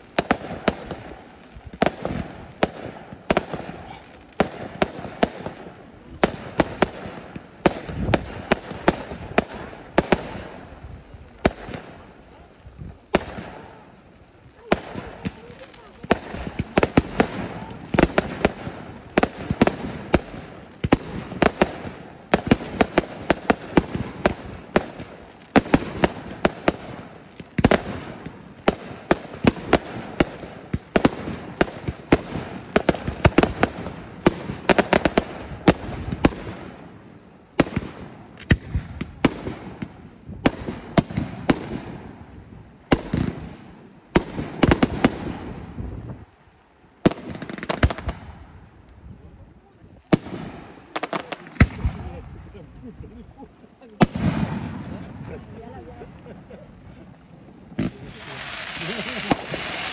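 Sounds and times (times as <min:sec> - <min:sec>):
fireworks bangs and crackling: 0:00.0 - 0:59.9.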